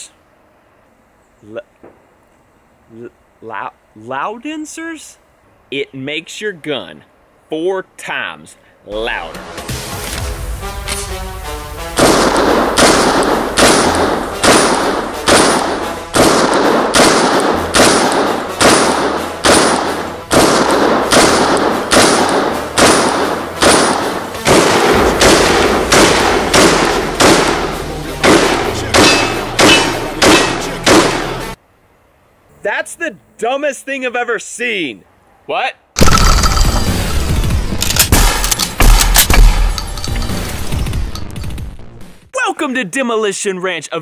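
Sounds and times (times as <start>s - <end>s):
pistol shots echoing: 12.0s - 31.5s.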